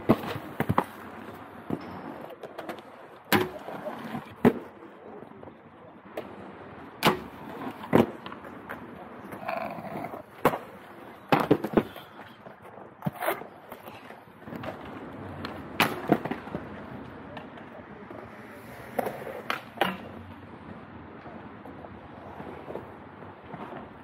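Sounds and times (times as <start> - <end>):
skates knocking on concrete ledge: 0.0 - 4.8, 7.0 - 20.2
skate wheels rolling on concrete: 0.0 - 24.0.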